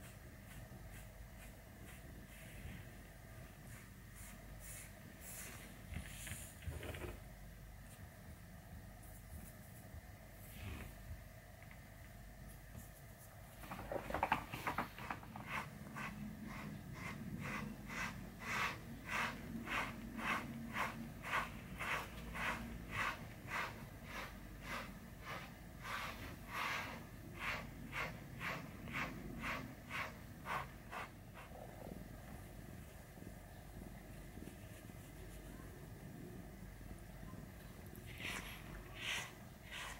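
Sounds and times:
brush strokes through cat fur: 0.0s - 6.6s, 15.0s - 31.7s, 34.1s - 35.9s, 37.9s - 39.9s.

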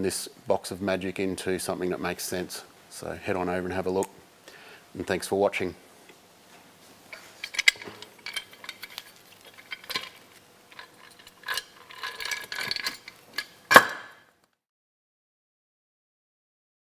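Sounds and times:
metal clinks and scrapes: 7.1s - 14.2s
sharp metal clack: 10.8s - 14.3s.

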